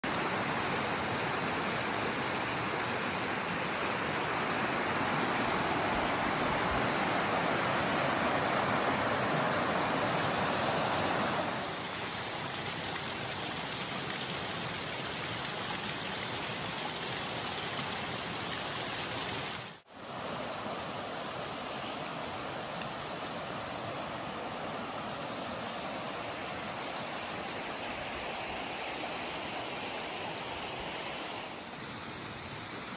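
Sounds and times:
rushing water of streams: 0.0 - 32.9.

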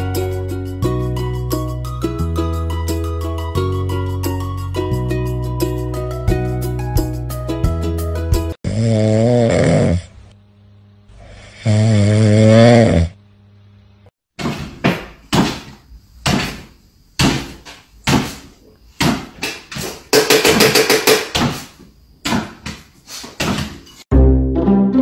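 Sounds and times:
dog snoring: 8.6 - 10.2, 11.2 - 13.2.

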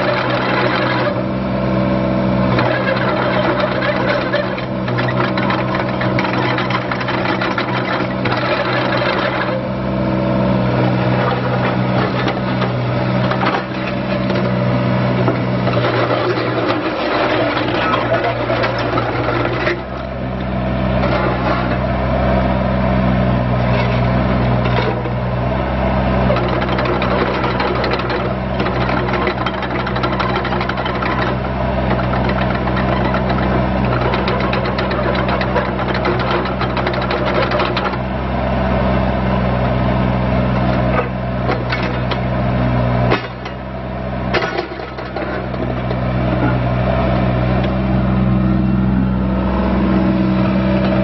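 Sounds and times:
hydraulics clattering: 0.0 - 1.2, 2.5 - 9.7, 10.8 - 21.9, 23.6 - 25.3, 26.2 - 38.1, 40.5 - 42.4, 43.1 - 43.7, 44.3 - 47.9, 50.5 - 51.0
excavator diesel engine running: 0.0 - 51.0.

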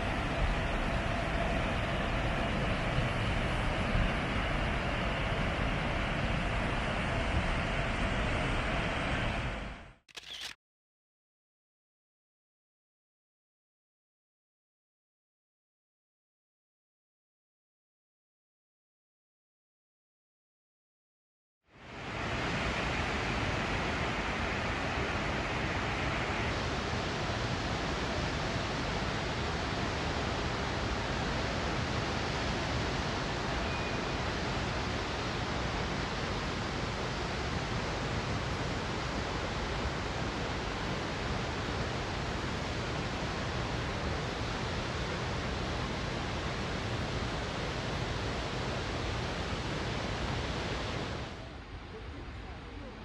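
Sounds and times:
rushing water: 21.8 - 51.4.

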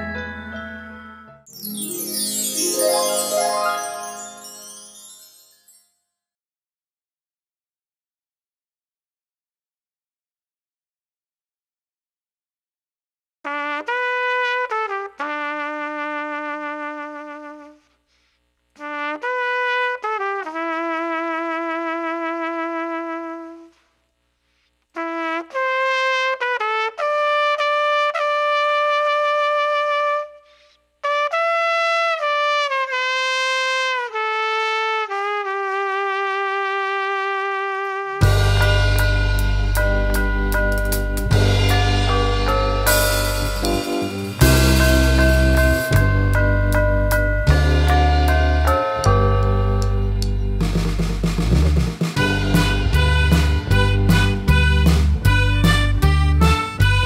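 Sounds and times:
trumpet solo: 1.8 - 4.9, 13.5 - 17.9, 18.8 - 23.8, 25.0 - 46.0, 52.2 - 57.0
band with drum kit: 38.2 - 57.0.

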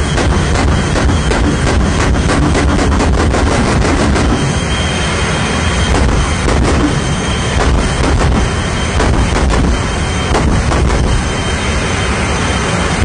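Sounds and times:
jet engine roaring: 0.0 - 13.0
sharp cracks: 0.1 - 4.4, 7.6 - 11.1.

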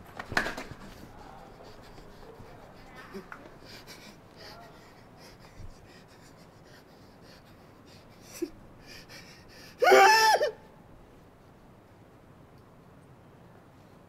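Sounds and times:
person breathing fast: 0.8 - 9.9
high-pitched vocal cry: 9.8 - 10.6.

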